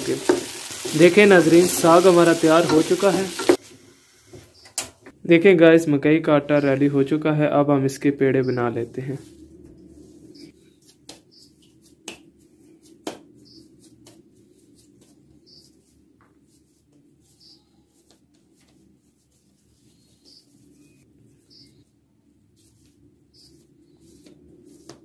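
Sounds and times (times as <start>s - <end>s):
hands patting dough: 9.2s - 20.9s, 22.5s - 25.0s.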